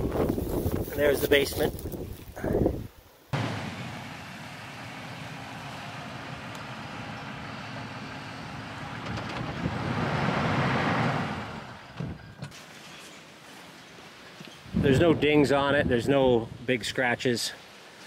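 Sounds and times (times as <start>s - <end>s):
tyres on grass: 0.0s - 10.0s
suv engine driving slowly: 3.4s - 12.0s.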